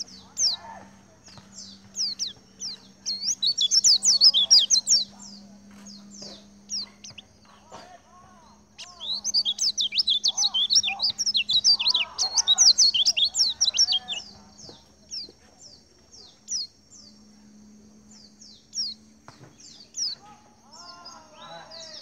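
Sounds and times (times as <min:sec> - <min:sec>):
softer lower bird calls: 0:00.0 - 0:07.8, 0:08.4 - 0:15.3
birds chirping rapidly: 0:00.0 - 0:22.0.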